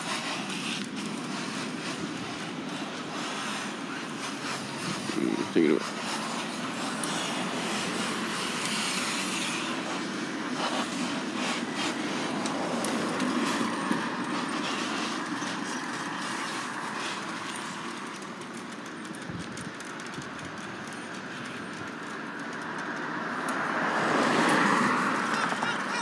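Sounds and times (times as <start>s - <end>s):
bicycle tyres on road: 0.0s - 26.0s.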